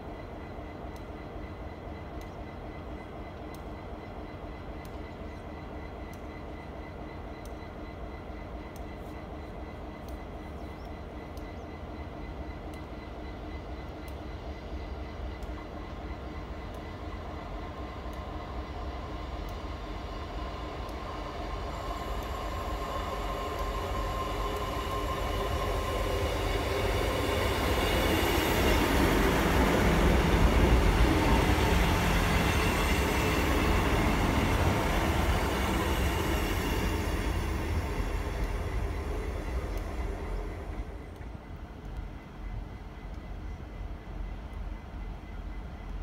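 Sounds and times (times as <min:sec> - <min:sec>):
diesel train passing: 0:00.0 - 0:46.0.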